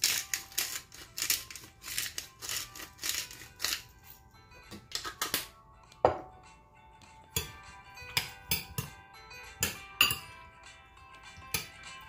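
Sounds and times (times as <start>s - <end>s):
pepper mill grinding: 0.0s - 4.1s
soft background music: 0.0s - 12.0s.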